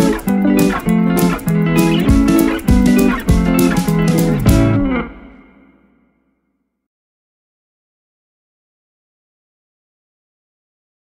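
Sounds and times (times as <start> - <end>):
plucked string music: 0.0 - 5.9.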